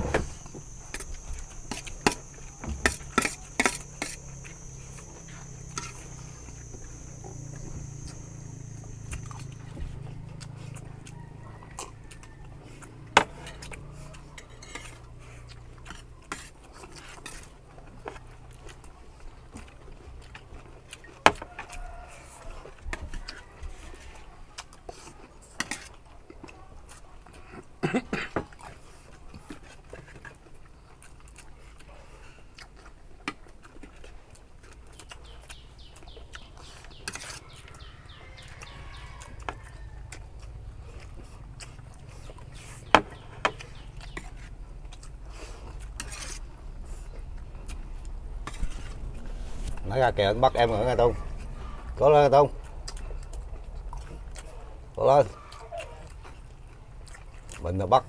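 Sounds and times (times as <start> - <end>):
low background rumble: 39.3 - 55.0.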